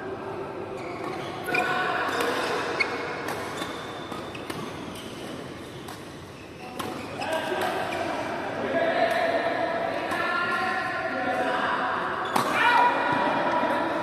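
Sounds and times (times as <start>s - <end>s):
racket hitting shuttlecock: 6.8s - 7.9s.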